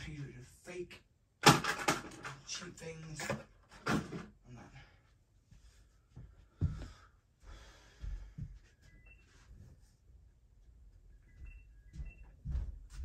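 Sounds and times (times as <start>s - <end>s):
person breathing and sighing: 6.4s - 8.6s.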